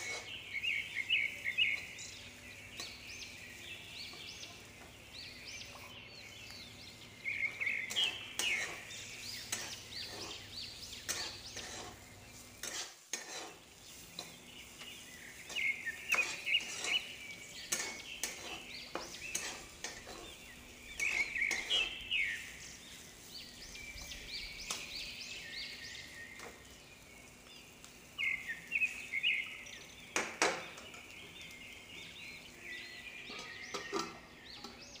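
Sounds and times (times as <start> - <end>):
steel spatula scraping a pan: 0.0 - 1.0, 7.8 - 23.9
light sizzle of frying: 0.0 - 35.0.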